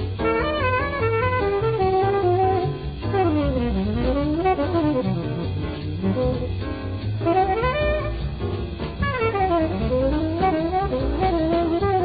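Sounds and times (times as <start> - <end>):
tenor saxophone solo: 0.0 - 8.4, 9.0 - 12.0
jazz drums: 0.0 - 12.0
walking bass: 0.0 - 12.0.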